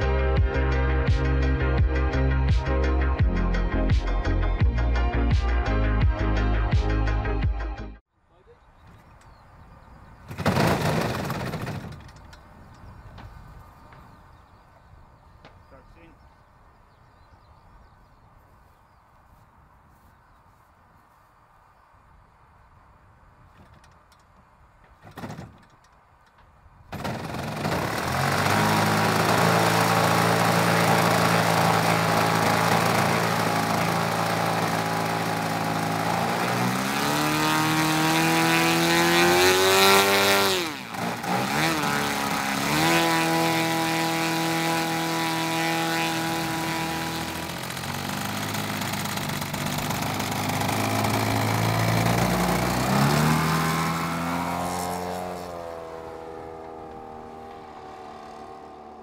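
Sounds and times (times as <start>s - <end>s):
model plane engine revving: 10.3s - 12.4s, 26.9s - 59.0s.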